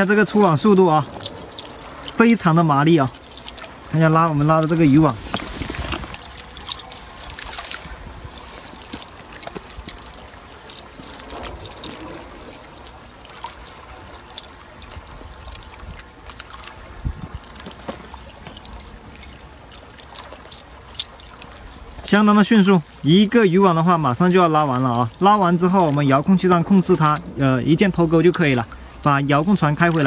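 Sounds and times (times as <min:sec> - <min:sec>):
water dripping off net: 0:00.0 - 0:30.0
light clicks and rustles: 0:00.1 - 0:23.0.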